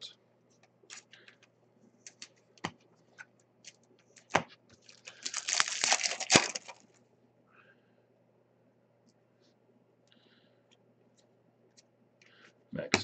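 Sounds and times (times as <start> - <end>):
cards crackling rustle: 0.8 - 1.4, 2.0 - 7.0.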